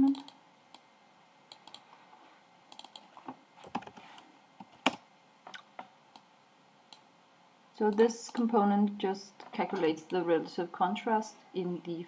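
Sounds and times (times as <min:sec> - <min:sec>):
computer mouse clicks: 0:00.0 - 0:00.9, 0:01.5 - 0:01.9, 0:02.7 - 0:06.3, 0:06.9 - 0:07.1, 0:07.9 - 0:08.5.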